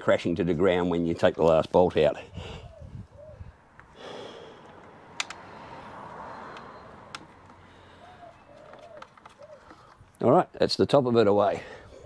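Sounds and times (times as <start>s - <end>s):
plastic fairing clicks: 4.8s - 5.4s.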